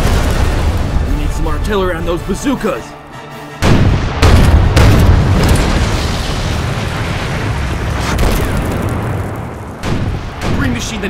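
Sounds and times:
low rumble of explosions: 0.0s - 2.5s, 3.6s - 11.0s
cannon blasts: 3.6s - 11.0s.

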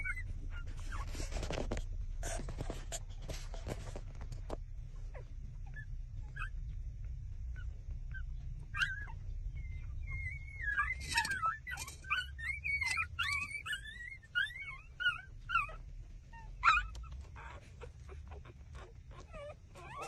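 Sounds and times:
puppy squeaks: 0.0s - 1.4s, 7.6s - 20.0s
puppy whimper: 0.0s - 1.4s, 5.1s - 6.6s, 7.6s - 20.0s
puppies suckling: 0.0s - 20.0s.

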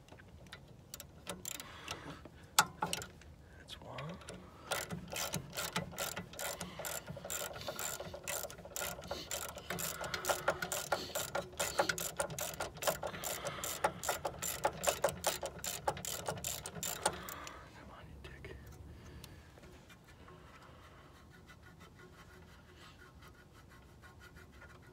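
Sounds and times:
ratchet wrench clicking: 0.6s - 2.0s, 4.2s - 17.5s.

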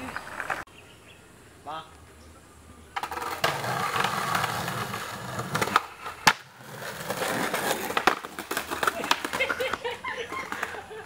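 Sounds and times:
skateboard wheels rolling on concrete: 0.0s - 0.7s, 2.9s - 11.0s
skateboard clacks: 3.0s - 10.9s.

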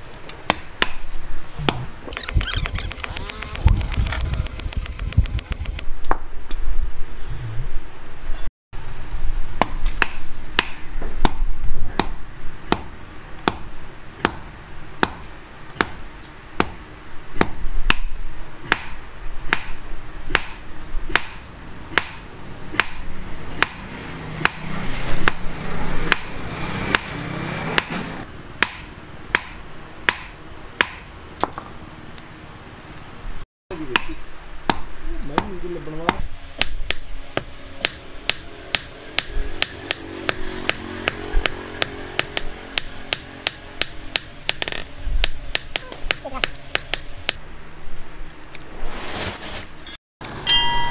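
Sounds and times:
hammer striking metal on anvil: 17.4s - 25.4s, 26.1s - 27.2s, 27.8s - 28.0s, 28.6s - 31.6s, 36.1s - 47.4s, 50.4s - 50.9s.

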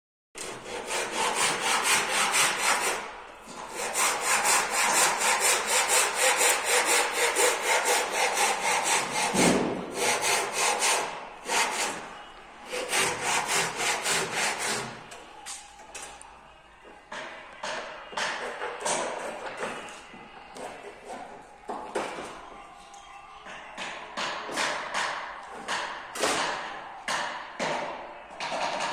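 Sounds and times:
hand saw cutting wood: 0.4s - 12.1s, 12.7s - 15.1s.

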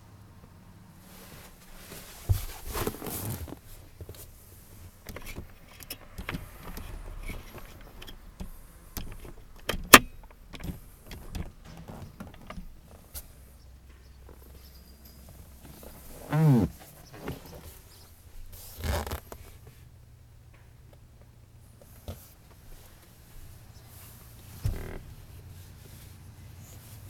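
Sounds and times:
rustling and handling knocks: 1.4s - 19.6s.

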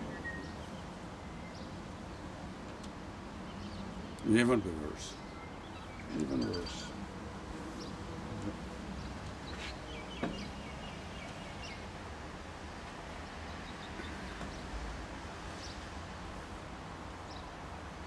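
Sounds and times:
small birds chirping: 0.0s - 12.0s, 13.4s - 14.8s, 15.5s - 15.9s.

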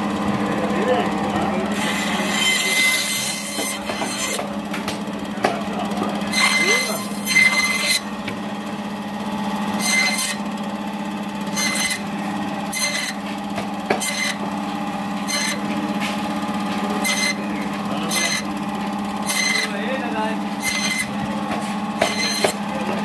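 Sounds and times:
band saw humming: 0.0s - 23.0s
saw blade rasping through fish: 1.8s - 4.5s, 6.3s - 8.1s, 9.8s - 10.5s, 11.4s - 12.1s, 12.7s - 14.4s, 15.2s - 16.2s, 17.0s - 18.5s, 19.2s - 23.0s.

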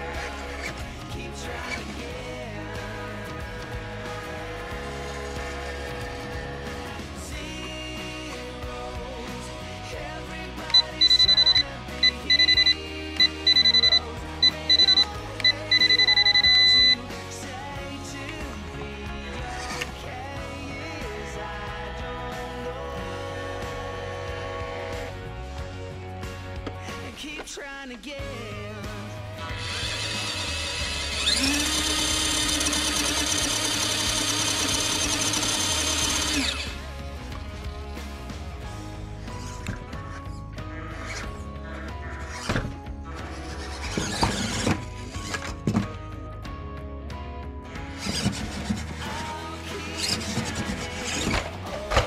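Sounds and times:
background music: 0.0s - 52.0s
high electronic beeps: 10.7s - 17.1s
small electric motor whining: 29.5s - 36.8s.

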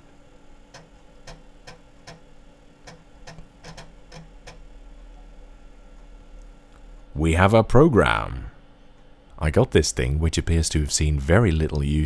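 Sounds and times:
steady hum: 0.0s - 12.0s
floppy drive clicking: 0.7s - 5.2s.

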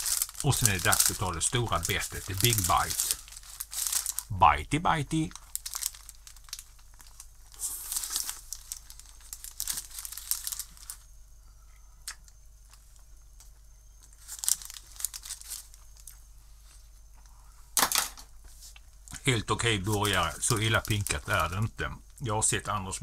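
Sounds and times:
paper wrapper crinkling: 0.0s - 11.1s, 14.0s - 16.2s, 19.0s - 22.2s.

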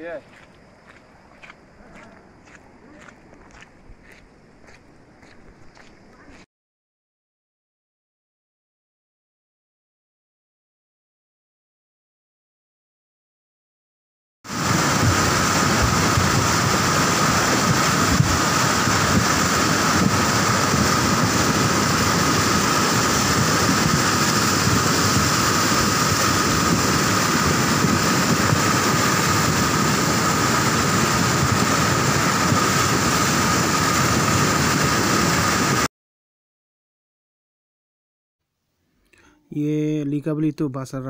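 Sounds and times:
river torrent rushing: 14.5s - 35.9s.

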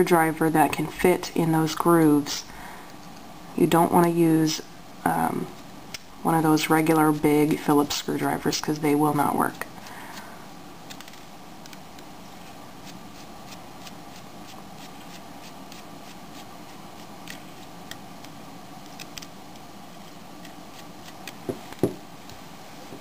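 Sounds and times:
knocks of plastic player handled: 21.4s - 22.0s.

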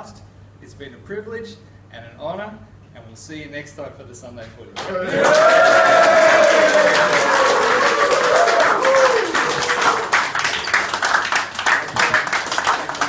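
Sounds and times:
crowd cheering: 4.8s - 13.0s
people clapping: 4.8s - 13.0s.

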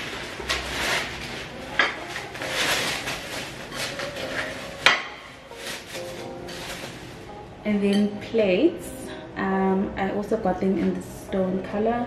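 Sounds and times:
plastic bags rustling: 0.0s - 7.5s.

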